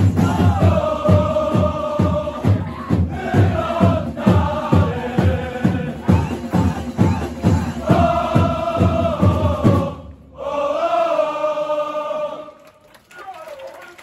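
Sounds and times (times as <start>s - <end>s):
rhythmic beat: 0.0s - 9.8s
crowd singing a chant: 0.0s - 12.8s.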